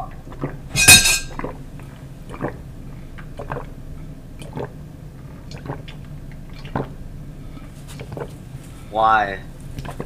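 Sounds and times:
person gulping a drink: 3.2 - 3.8, 4.4 - 4.8, 5.4 - 7.0, 8.0 - 8.3.

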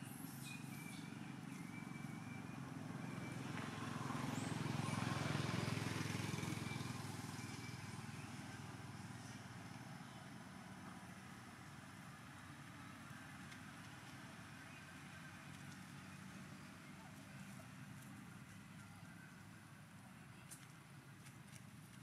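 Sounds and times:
vehicle engine passing by: 0.0 - 13.0.

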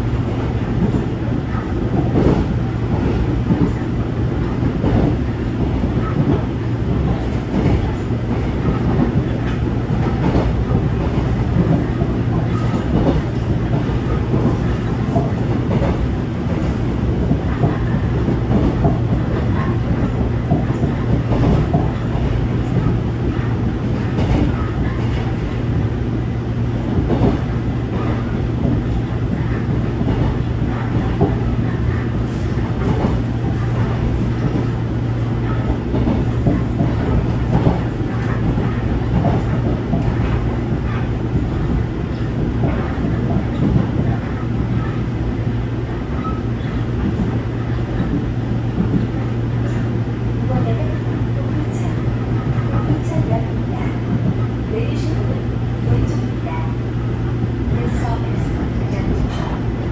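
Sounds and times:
train rumble and hum: 0.0 - 59.9
wheels clicking on rails: 26.8 - 45.1.

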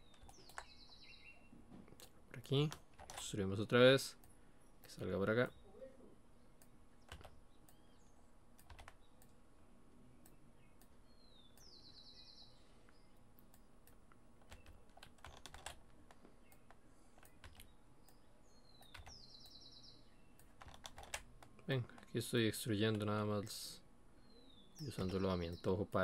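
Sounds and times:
computer keyboard and mouse clicks: 0.0 - 0.8, 1.9 - 3.3, 7.0 - 7.8, 8.6 - 9.4, 13.4 - 18.2, 18.8 - 19.2, 20.4 - 22.1.

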